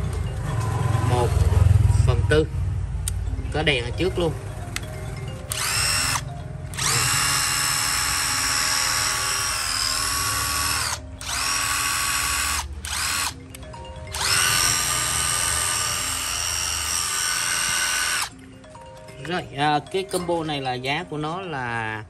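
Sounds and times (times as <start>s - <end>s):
impact driver motor whining: 5.5s - 13.4s, 14.1s - 18.3s.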